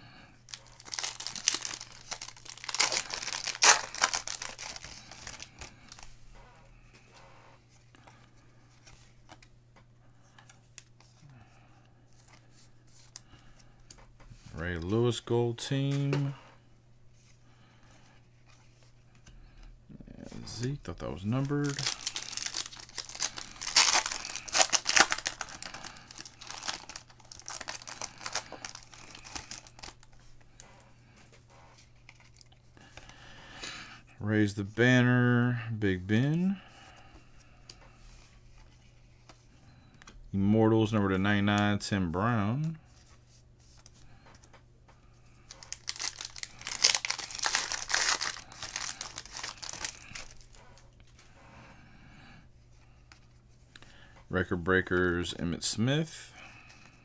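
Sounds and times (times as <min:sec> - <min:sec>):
foil wrapper crinkling: 0:00.5 - 0:06.1, 0:21.2 - 0:30.2, 0:45.5 - 0:50.8.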